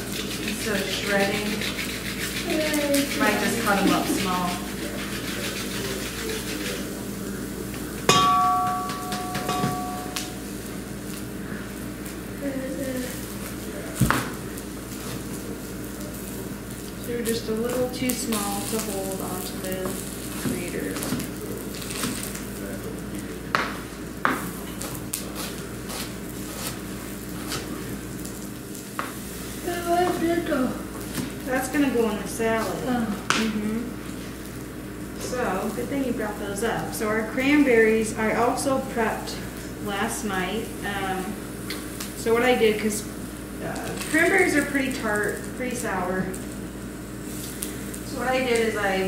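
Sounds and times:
metal kitchenware clanging: 8.1 - 10.4
fish sizzling in a frying pan: 9.2 - 23.0, 24.4 - 49.0.

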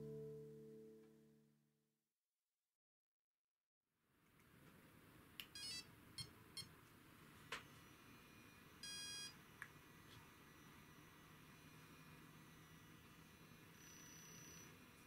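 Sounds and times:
electronic beeps: 7.7 - 9.4, 10.5 - 15.0.

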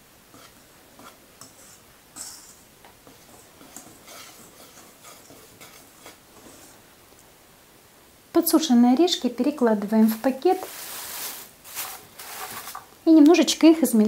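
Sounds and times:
whisk scraping metal bowl: 0.3 - 6.8.

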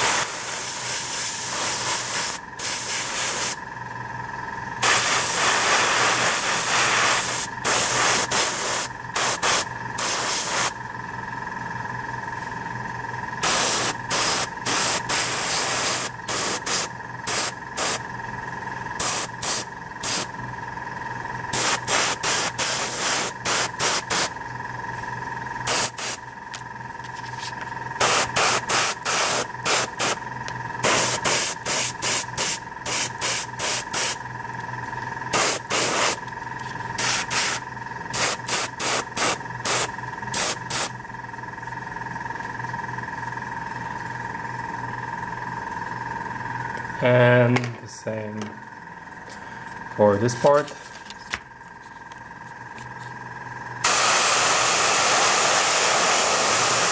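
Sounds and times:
airbrush spraying hiss: 0.0 - 3.6, 4.8 - 10.8, 13.4 - 18.0, 19.0 - 20.3, 21.5 - 24.3, 25.7 - 26.2, 28.0 - 30.2, 30.8 - 34.2, 35.3 - 36.2, 37.0 - 40.9, 53.8 - 56.9
steady hum: 0.0 - 56.9.

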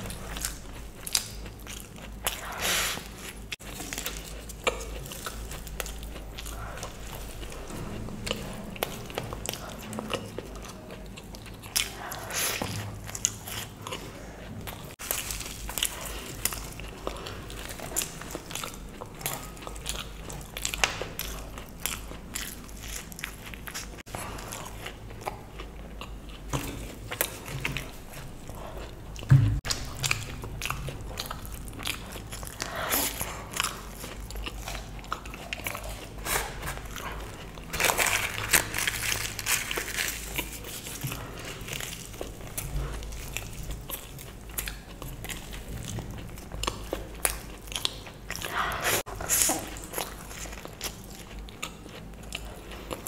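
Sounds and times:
close chewing: 0.0 - 53.0
thump: 29.3 - 29.6.

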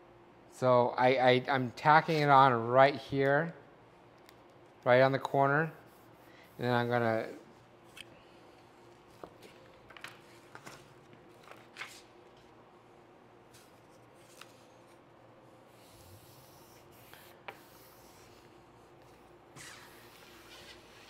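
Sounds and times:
vinyl and paper rustling: 9.1 - 12.5
squeegee rubbing vinyl: 19.0 - 21.0.

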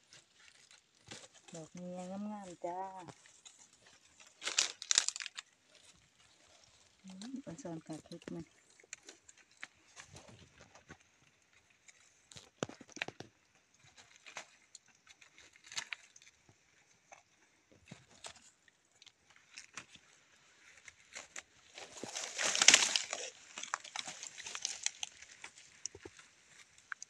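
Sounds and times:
rustling in dry leaves: 0.0 - 10.7, 18.0 - 27.0
twigs snapping: 0.4 - 10.1, 15.1 - 16.3, 20.9 - 27.0.

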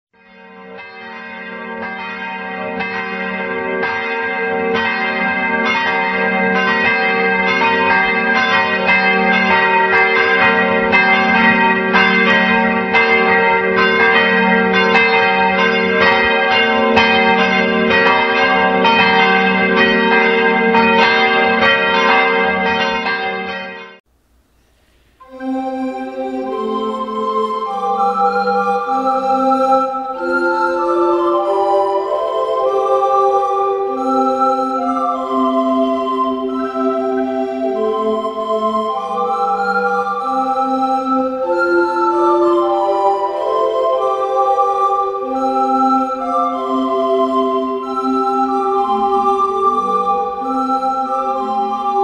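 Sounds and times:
church bells ringing: 0.2 - 24.0, 25.2 - 52.0
recorders playing tune: 24.8 - 52.0.

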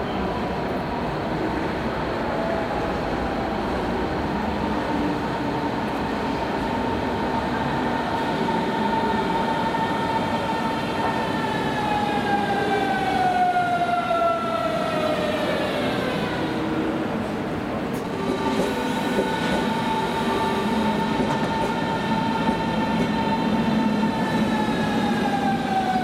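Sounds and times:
train wheels rumbling on rails: 14.8 - 26.0.

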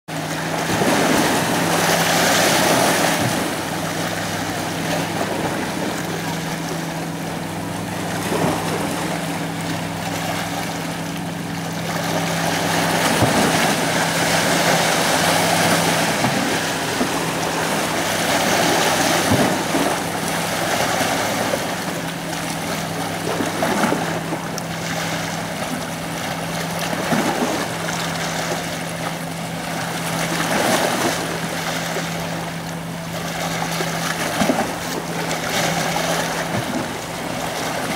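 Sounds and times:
sea waves washing against rocks: 0.1 - 37.9
steady low hum: 0.1 - 37.9.

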